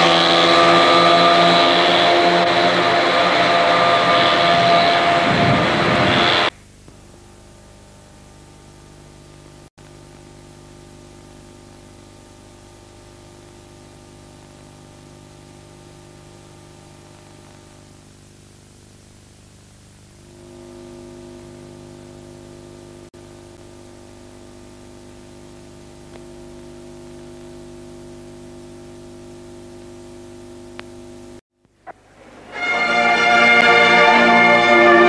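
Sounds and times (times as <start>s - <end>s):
tape hiss and electrical hum: 0.8s - 35.0s
violin playing: 32.2s - 35.0s.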